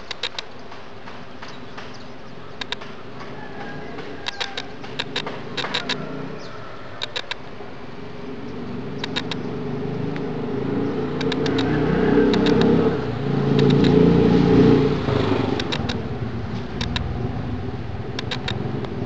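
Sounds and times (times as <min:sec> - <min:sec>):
vehicle engine passing: 0:02.7 - 0:07.0, 0:07.6 - 0:19.0.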